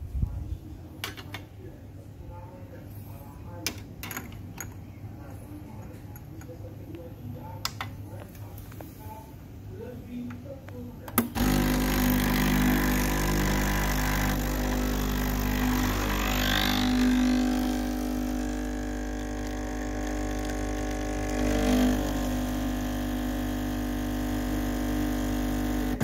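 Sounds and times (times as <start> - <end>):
espresso pump buzzing hum: 11.4 - 26.0.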